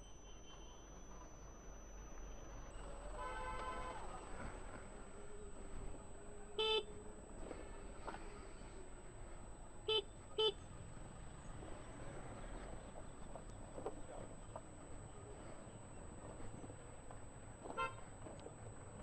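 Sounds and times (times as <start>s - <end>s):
low traffic noise: 0.0s - 19.0s
vehicle horn beeps: 2.8s - 5.3s, 6.4s - 7.1s, 9.8s - 10.7s, 17.6s - 18.2s.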